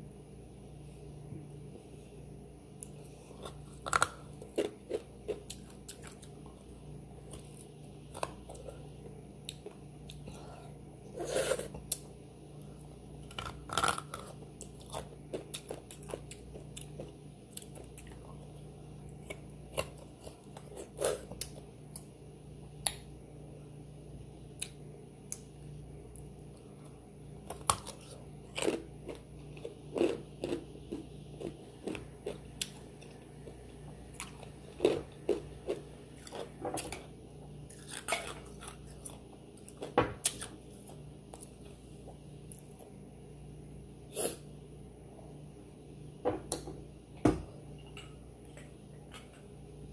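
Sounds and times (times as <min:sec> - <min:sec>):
faint low hum: 0:00.0 - 0:49.9
close-miked eating and chewing: 0:02.8 - 0:22.2, 0:24.5 - 0:43.0.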